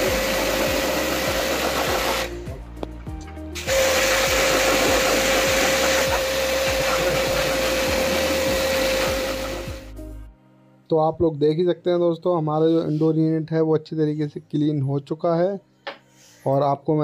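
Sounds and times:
pressure washer pump whining: 0.0s - 2.4s, 3.6s - 9.9s
water jet hissing: 0.0s - 2.4s, 3.6s - 9.9s.

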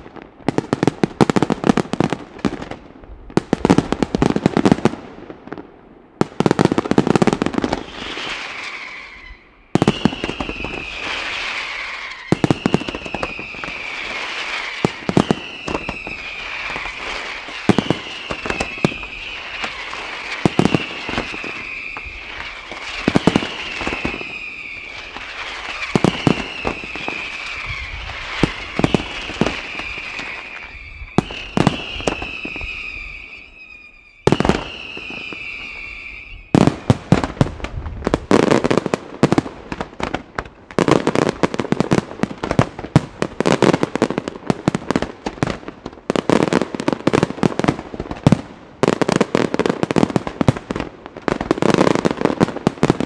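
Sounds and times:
fireworks crackle: 0.0s - 5.6s, 6.2s - 53.0s
fireworks bangs: 0.0s - 53.0s
high whistling tone: 7.8s - 19.9s, 20.5s - 22.6s, 23.2s - 36.6s.

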